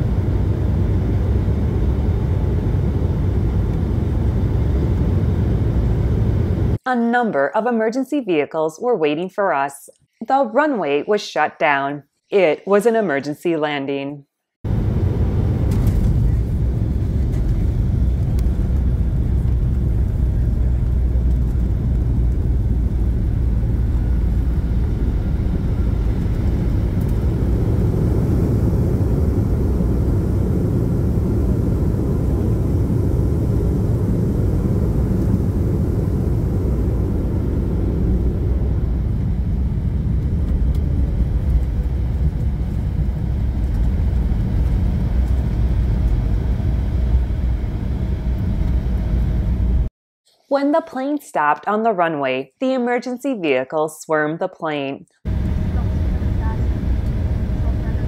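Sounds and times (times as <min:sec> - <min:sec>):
airliner cabin rumble: 0:00.0 - 0:06.8, 0:14.7 - 0:49.9, 0:55.3 - 0:58.0.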